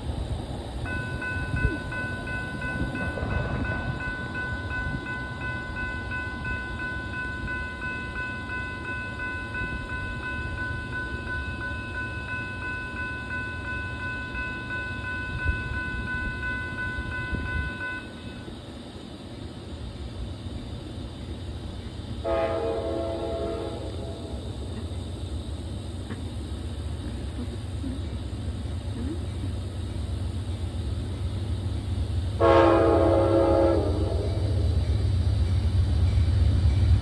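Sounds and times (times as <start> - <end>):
crossing bell dinging: 0.8 - 18.6.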